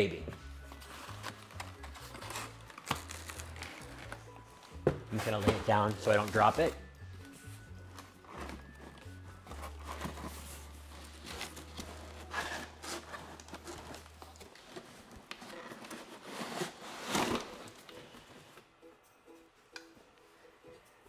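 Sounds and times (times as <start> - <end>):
cardboard rustling and scraping: 5.0 - 6.8, 7.9 - 18.4.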